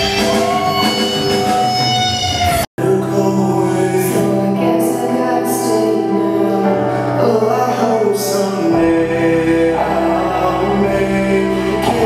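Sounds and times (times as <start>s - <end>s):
deep bass notes: 0.0s - 12.0s
instrumental accompaniment: 0.0s - 12.0s
man and woman singing duet: 2.8s - 12.0s.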